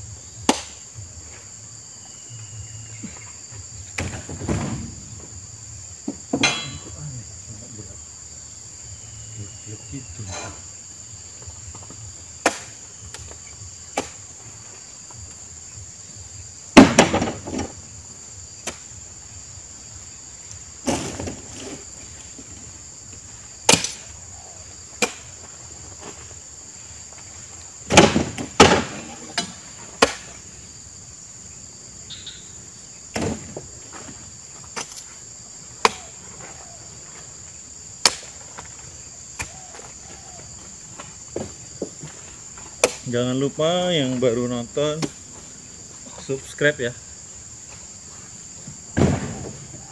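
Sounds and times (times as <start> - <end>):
high insect drone: 0.0 - 49.9
heavy thuds and knocks: 3.0 - 5.4, 6.0 - 7.0, 16.8 - 17.8, 48.6 - 49.8.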